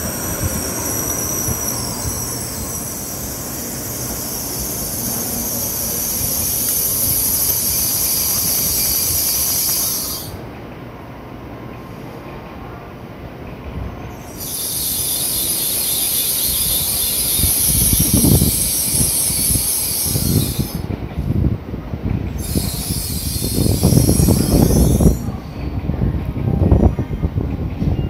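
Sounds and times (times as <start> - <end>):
high-pitched hissing squeal: 0.0 - 10.4, 14.1 - 20.8, 22.4 - 25.7
low uneven train rumble: 0.0 - 28.0.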